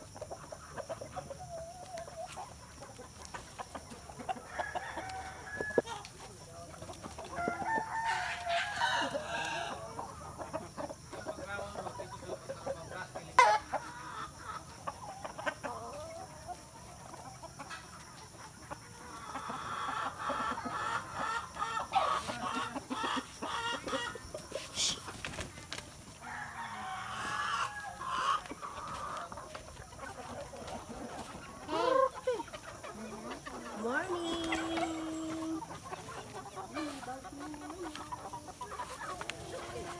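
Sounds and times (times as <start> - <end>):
chickens clucking: 0.0 - 39.9.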